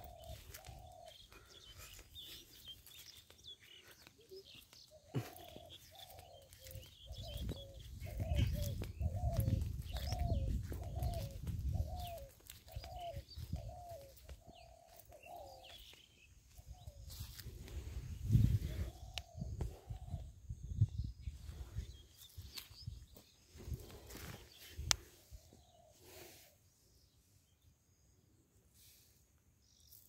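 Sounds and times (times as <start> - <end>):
bird cooing: 0.0 - 20.6
small birds chirping: 0.0 - 30.0.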